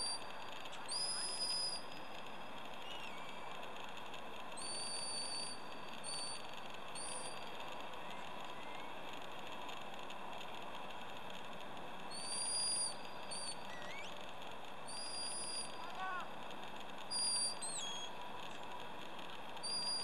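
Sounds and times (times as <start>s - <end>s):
high whistle blasts: 0.0s - 0.3s, 0.9s - 2.0s, 4.6s - 7.4s, 12.1s - 14.1s, 14.9s - 16.3s, 17.1s - 18.2s, 19.6s - 20.0s
faint outdoor hum: 0.0s - 20.0s.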